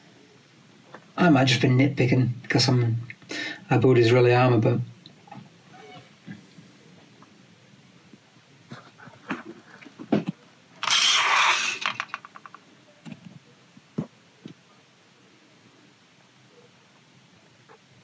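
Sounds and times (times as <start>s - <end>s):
plastic parts knocking and clicking: 9.3s - 13.3s
rattle of small clicks: 10.8s - 12.6s.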